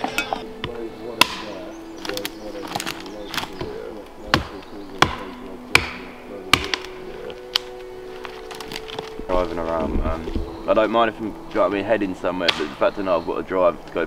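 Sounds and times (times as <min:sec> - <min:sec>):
hatchet chopping wood: 0:01.2 - 0:03.7, 0:04.3 - 0:07.7.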